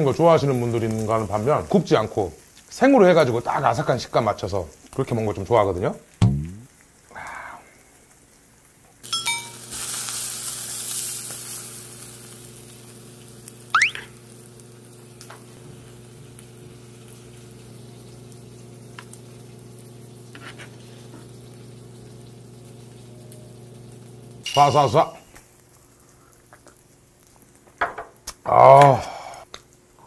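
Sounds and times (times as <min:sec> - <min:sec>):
meat sizzling on a grill pan: 0:00.0 - 0:30.0
short rising whistle: 0:13.8 - 0:14.1.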